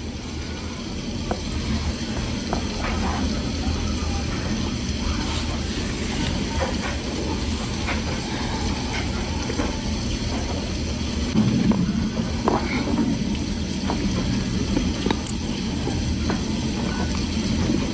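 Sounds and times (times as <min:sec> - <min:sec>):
low rumble: 0:11.3 - 0:15.0.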